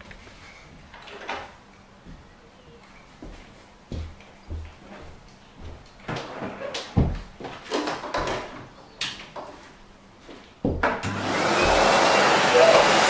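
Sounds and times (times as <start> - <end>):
vacuum cleaner motor rushing air: 11.0 - 13.0.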